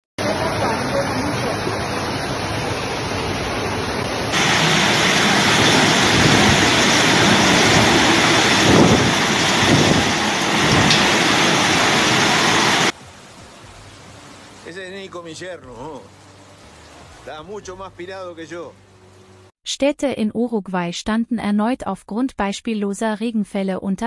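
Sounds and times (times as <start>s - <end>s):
floodwater rushing: 0.2s - 18.8s
torrential rain: 0.2s - 19.4s.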